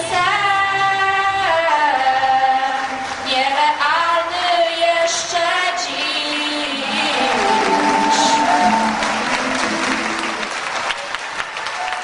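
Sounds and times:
young woman singing: 0.0s - 8.5s.

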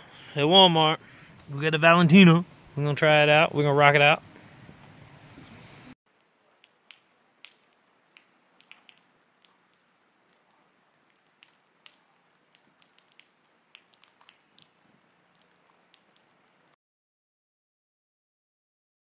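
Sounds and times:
campfire crackling: 0.0s - 16.8s
low hiss: 0.0s - 16.8s
pops and snaps of burning logs: 6.1s - 16.8s.

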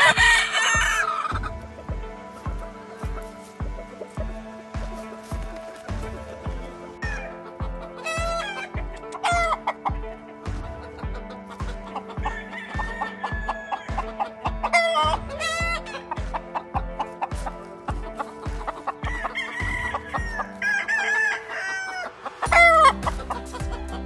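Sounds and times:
roosters crowing: 0.0s - 1.6s, 5.8s - 10.2s, 10.8s - 24.0s
background music with beat: 0.0s - 24.0s.

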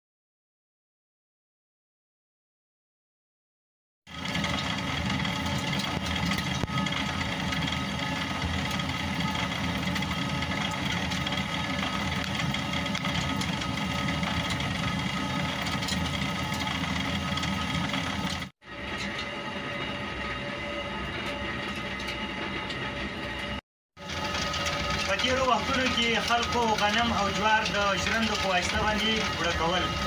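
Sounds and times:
millstone grinding rumble: 4.1s - 19.2s, 24.0s - 30.0s.

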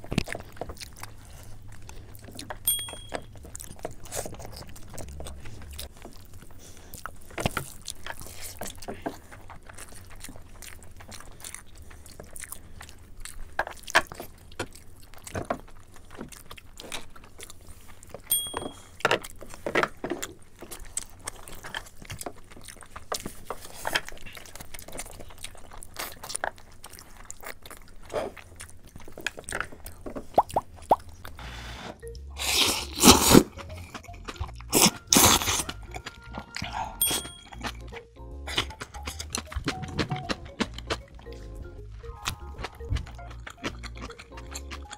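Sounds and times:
lip smacking: 0.0s - 19.6s, 20.3s - 31.4s, 32.1s - 44.9s
wet chewing: 0.0s - 44.9s
noodle slurp: 29.6s - 36.0s.

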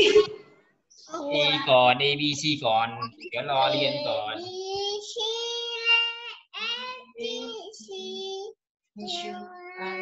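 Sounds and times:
child singing: 1.1s - 1.9s, 3.4s - 10.0s.

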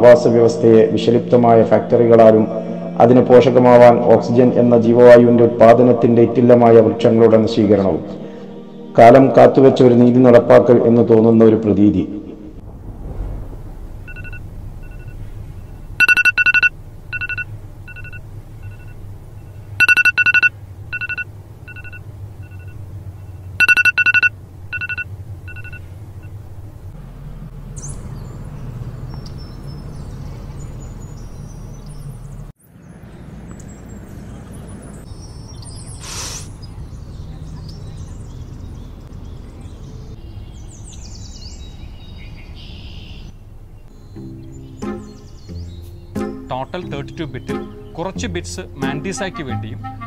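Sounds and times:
low steady hum: 12.0s - 27.5s
phone alarm beeping: 14.1s - 15.2s, 16.0s - 19.0s, 19.8s - 22.8s, 23.6s - 26.4s.

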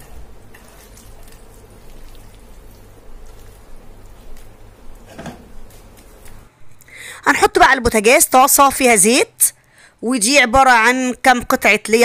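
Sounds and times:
wet squishing of marinated meat: 0.0s - 4.6s.

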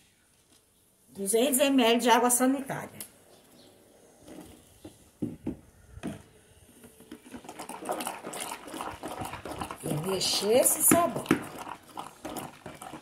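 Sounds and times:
spoon stirring thick liquid soap: 6.8s - 13.0s.

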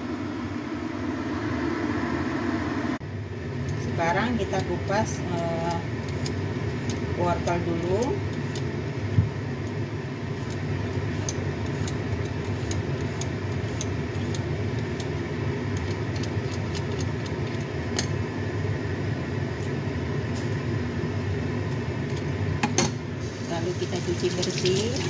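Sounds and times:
low machine hum: 0.0s - 25.0s
peeler scraping carrot: 10.4s - 15.1s.

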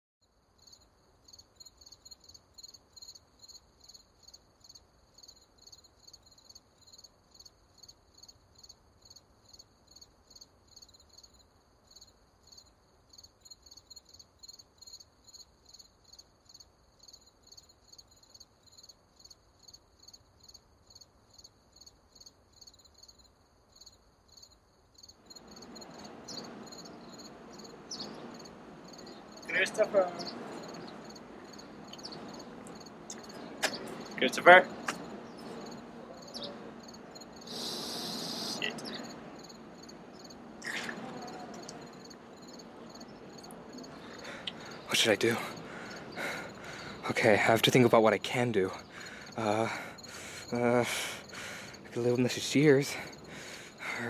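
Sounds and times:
crickets chirping: 0.2s - 54.0s
low rushing background noise: 24.1s - 54.0s.

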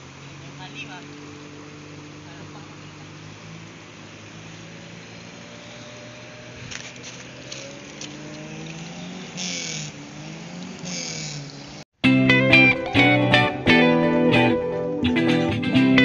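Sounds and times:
rushing river water: 0.0s - 9.3s
vehicle engine revving: 0.0s - 11.9s
guitar music: 12.0s - 16.0s.

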